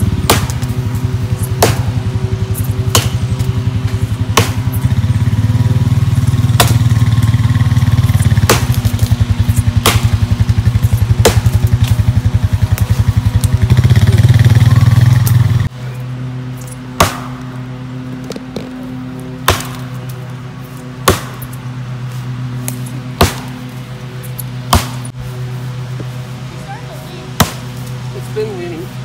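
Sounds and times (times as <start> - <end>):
axe chopping tree trunk: 0.1 - 0.8, 1.4 - 2.0, 2.7 - 4.9, 6.4 - 7.2, 8.0 - 12.1, 17.0 - 17.5, 19.4 - 20.2, 21.0 - 21.6, 22.6 - 23.6, 24.7 - 25.1, 27.4 - 27.7.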